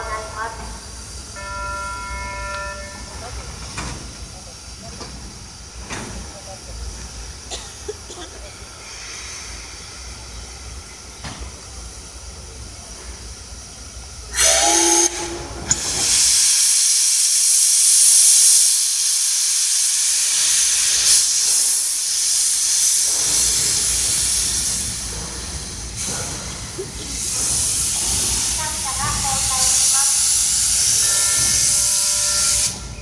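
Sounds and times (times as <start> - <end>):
steam hissing: 0.0 - 33.0
steam locomotive whistle: 1.3 - 3.2, 14.3 - 16.7, 29.6 - 32.9.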